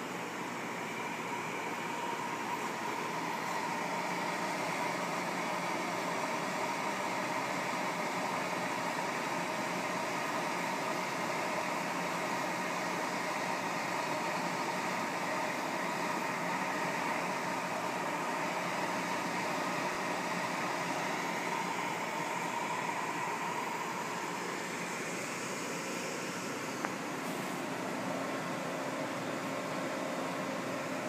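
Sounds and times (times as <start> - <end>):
faint steady whine: 0.0 - 31.0
hot-air blower rushing: 0.0 - 31.0.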